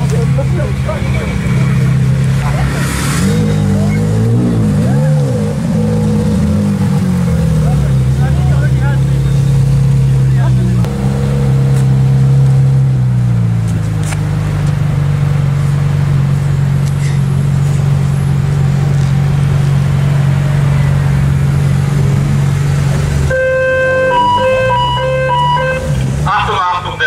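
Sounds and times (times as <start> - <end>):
car engine idling: 0.0 - 27.0
short horn toots: 23.3 - 26.0.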